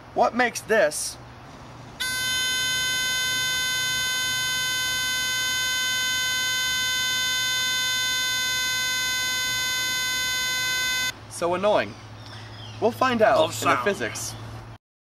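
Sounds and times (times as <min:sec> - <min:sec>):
buzzy electronic beep tone: 0:02.0 - 0:11.1.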